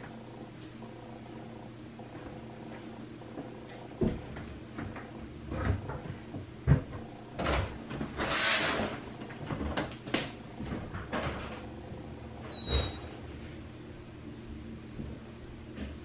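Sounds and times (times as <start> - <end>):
light knocks and thumps: 4.0 - 8.1
high squeak: 12.5 - 13.2.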